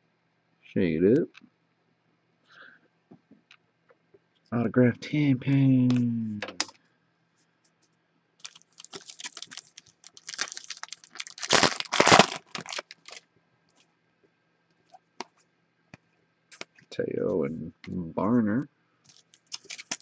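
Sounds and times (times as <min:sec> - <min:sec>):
foil wrapper tearing and crinkling: 0:08.4 - 0:13.2, 0:19.1 - 0:20.0.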